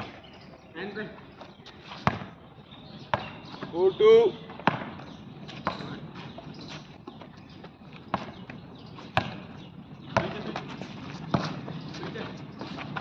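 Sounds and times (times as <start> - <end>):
basketball bouncing on concrete: 2.0 - 2.4, 3.0 - 3.8, 4.4 - 13.0.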